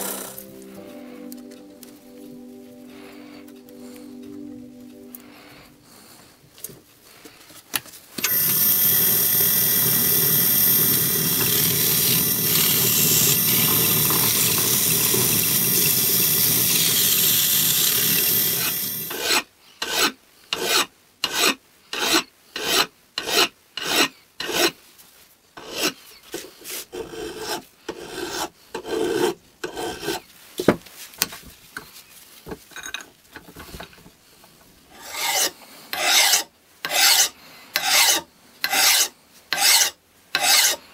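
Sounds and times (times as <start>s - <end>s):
power tool whining: 8.2s - 19.2s
hand file on metal: 8.9s - 24.8s, 25.6s - 30.3s, 34.9s - 40.8s.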